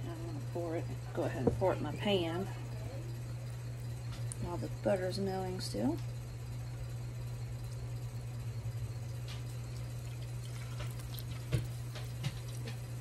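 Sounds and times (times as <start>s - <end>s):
steady low hum: 0.0s - 13.0s
milk pouring: 9.2s - 13.0s.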